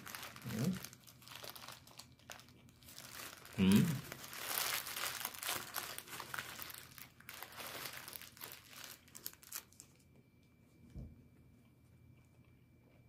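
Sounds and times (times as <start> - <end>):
food packaging crinkling: 0.0 - 10.1.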